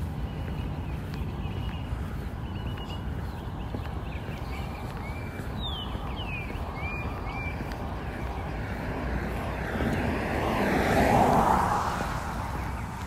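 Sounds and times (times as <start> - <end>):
bird chirps: 0.0 - 8.6
vehicle passing by: 6.6 - 13.0.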